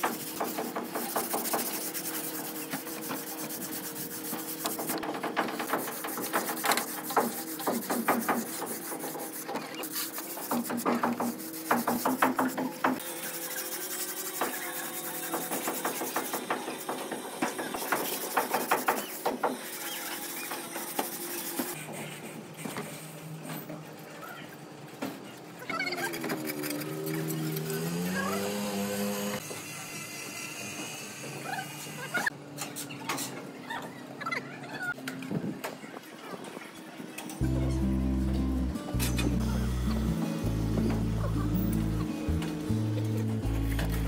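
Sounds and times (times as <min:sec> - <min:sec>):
block scraping render: 0:00.0 - 0:23.0, 0:43.0 - 0:44.0.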